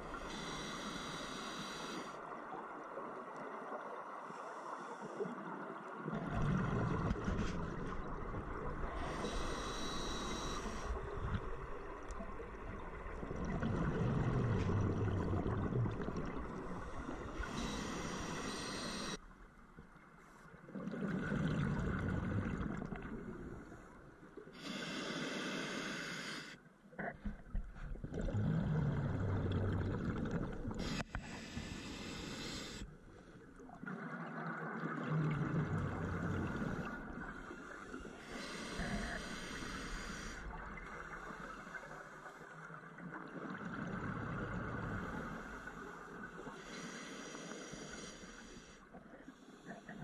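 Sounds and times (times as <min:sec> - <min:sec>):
diver breathing through regulator: 0:00.0 - 0:02.2, 0:08.9 - 0:11.1, 0:16.7 - 0:19.2, 0:24.6 - 0:26.6, 0:30.8 - 0:32.9, 0:36.2 - 0:42.5, 0:44.9 - 0:50.0.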